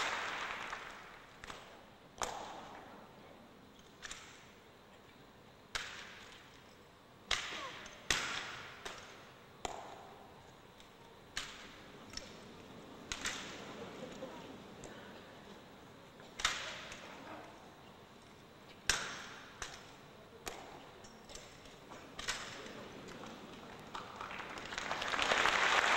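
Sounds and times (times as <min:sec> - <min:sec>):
rifles slapped by hands: 0:00.6 - 0:02.9, 0:05.7 - 0:06.5, 0:07.3 - 0:14.2, 0:16.2 - 0:17.1, 0:18.9 - 0:24.7.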